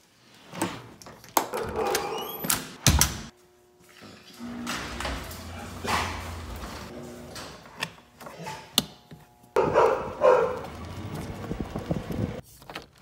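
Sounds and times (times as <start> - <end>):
garage door opener running: 4.1 - 12.4.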